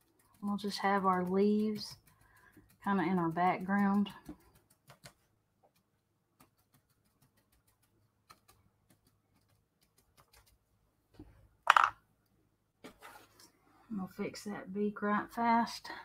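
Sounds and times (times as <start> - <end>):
art tools clicking and tapping: 0.0 - 10.6, 11.7 - 12.0.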